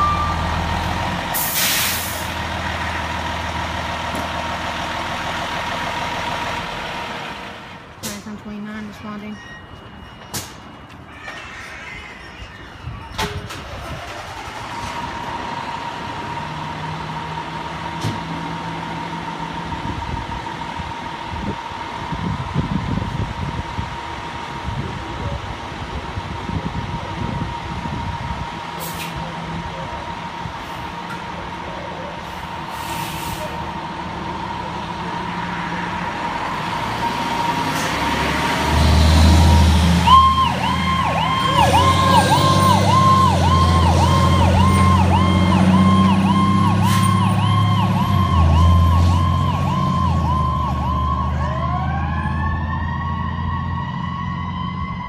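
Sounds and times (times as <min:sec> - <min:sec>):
diesel engine rumbling: 0:00.0 - 0:55.0
siren winding upward: 0:39.4 - 0:55.0
electronic siren yelping: 0:39.9 - 0:55.0.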